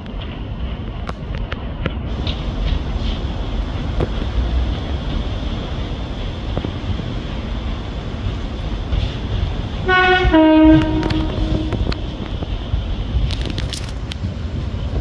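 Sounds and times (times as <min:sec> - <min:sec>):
diesel train rumbling: 0:00.0 - 0:15.0
two-tone train horn: 0:09.8 - 0:12.1.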